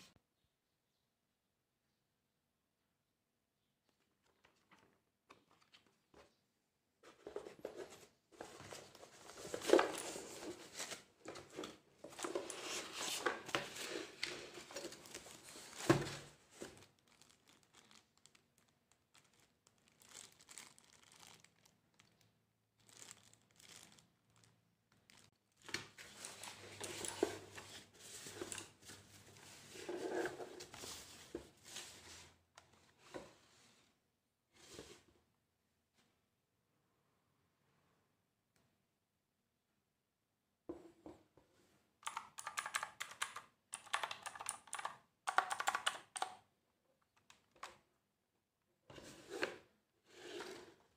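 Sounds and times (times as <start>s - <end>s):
packaging crinkling and rustling: 8.4s - 29.4s.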